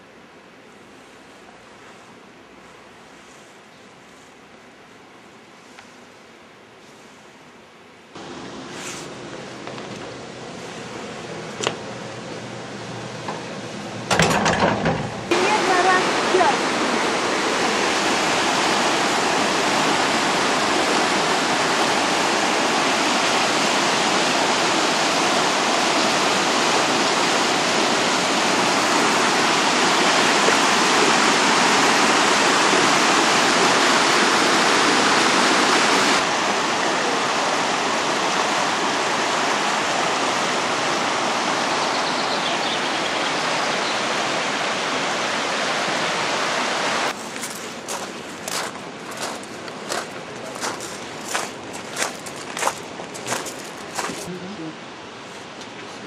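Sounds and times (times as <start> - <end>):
river rushing over rocks: 15.2 - 55.2.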